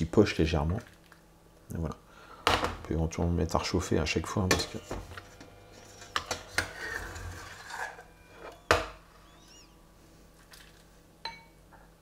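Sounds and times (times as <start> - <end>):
metal ladle scraping a saucepan: 5.8 - 8.7.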